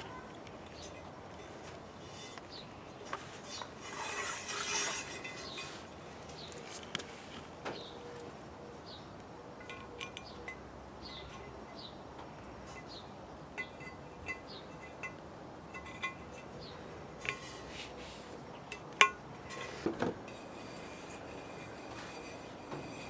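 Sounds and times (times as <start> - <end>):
bird chirps: 9.9 - 12.0
light metallic clinks: 12.7 - 17.4.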